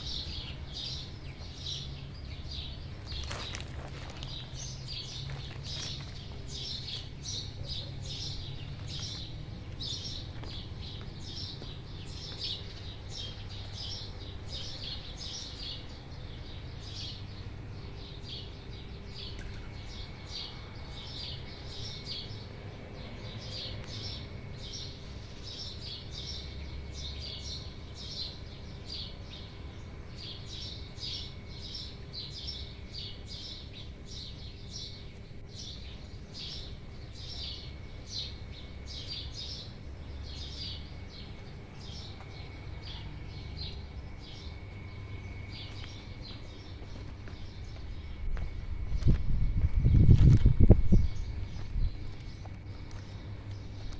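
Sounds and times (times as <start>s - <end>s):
low background rumble: 0.0s - 53.9s
songbirds chirping: 0.0s - 53.9s.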